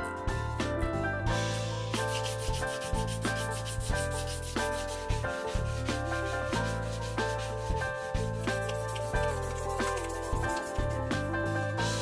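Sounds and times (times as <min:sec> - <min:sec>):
background music: 0:00.0 - 0:12.0
sandpaper rubbing on metal: 0:01.9 - 0:11.4.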